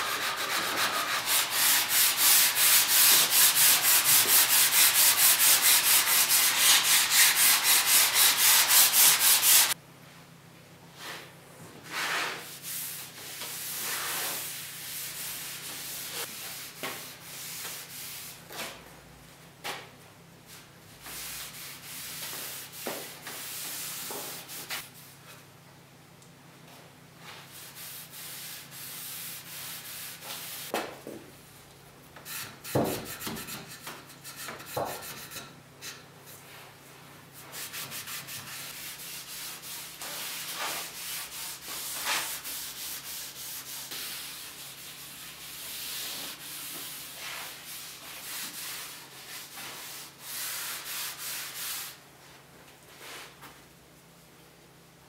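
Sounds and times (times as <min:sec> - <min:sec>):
sandpaper scratching on wood: 0:00.0 - 0:09.8.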